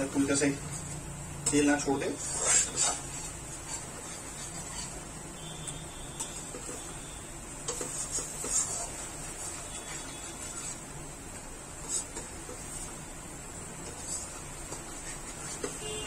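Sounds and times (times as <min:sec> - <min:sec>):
frying sizzle: 0:00.0 - 0:16.0
spatula scraping metal pan: 0:02.0 - 0:11.0, 0:13.8 - 0:16.0.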